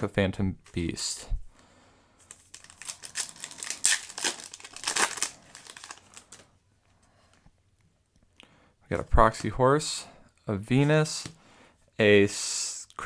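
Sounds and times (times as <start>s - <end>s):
foil wrapper crinkling: 2.3s - 6.4s.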